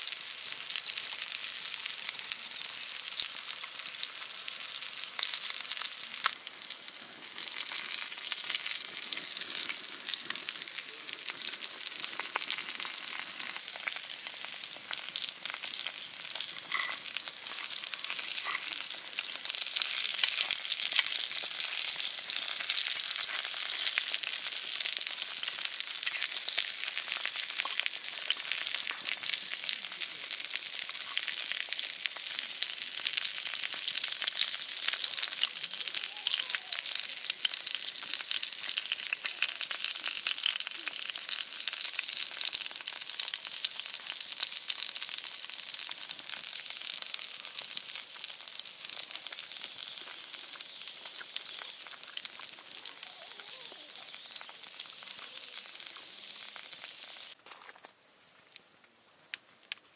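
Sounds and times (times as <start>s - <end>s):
food sizzling in a pan: 0.0s - 57.4s.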